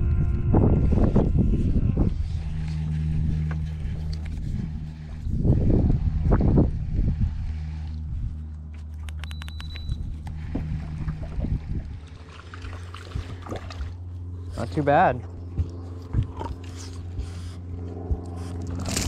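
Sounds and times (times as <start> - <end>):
low steady hum: 0.0 - 19.0
sharp clicks: 8.9 - 10.0.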